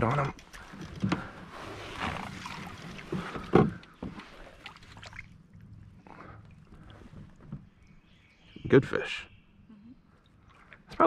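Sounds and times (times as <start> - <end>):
water splashing against kayak hull: 0.2 - 7.8.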